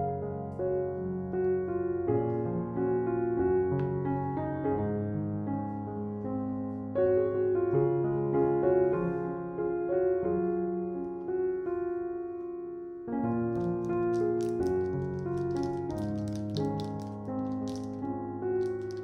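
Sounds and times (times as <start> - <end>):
soft solo piano music: 0.0 - 19.0
plastic wrapper crackling: 13.5 - 19.0.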